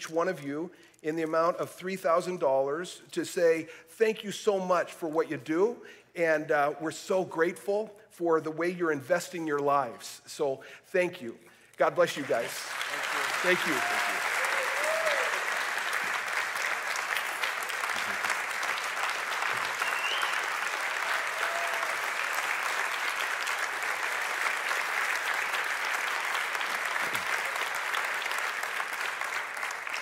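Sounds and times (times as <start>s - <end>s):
congregation applauding: 11.9s - 30.0s.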